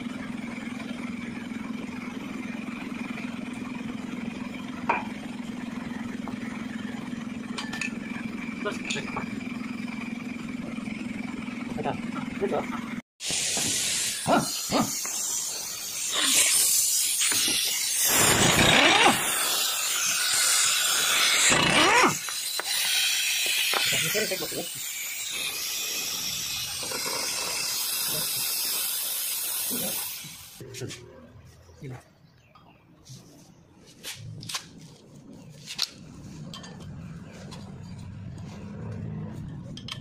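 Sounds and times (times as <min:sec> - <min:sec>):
pneumatic impact wrench whining: 0:12.9 - 0:30.6.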